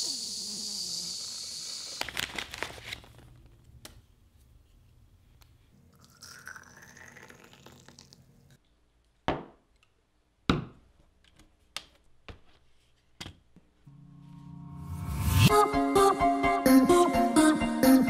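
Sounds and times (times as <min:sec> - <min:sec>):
water poured into a mug: 0:05.9 - 0:08.2.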